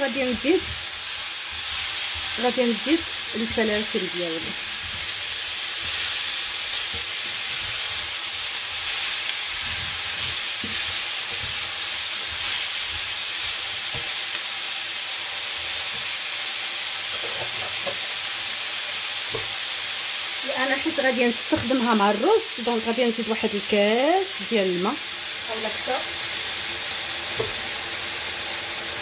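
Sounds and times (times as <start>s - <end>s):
food sizzling in a skillet: 0.0s - 29.0s
wooden spoon scraping: 0.2s - 14.2s, 17.1s - 18.1s.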